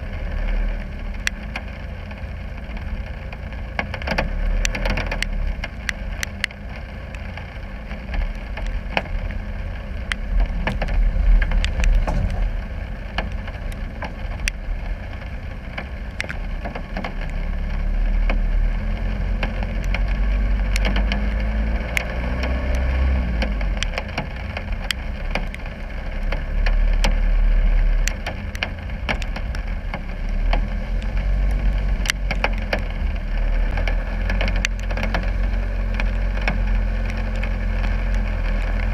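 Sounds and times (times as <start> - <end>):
diesel engine running at low revs: 0.0 - 38.9
sharp clicks and knocks: 2.6 - 9.4, 10.0 - 17.4, 18.2 - 38.9.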